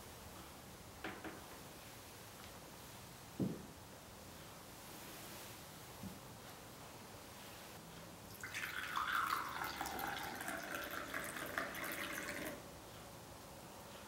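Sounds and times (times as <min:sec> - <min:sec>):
tea pouring into a cup: 0:08.3 - 0:12.6.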